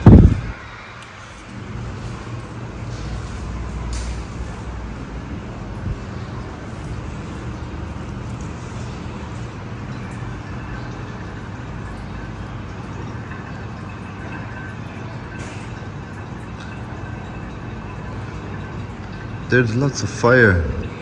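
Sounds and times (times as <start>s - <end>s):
faint hum: 0.0s - 21.0s.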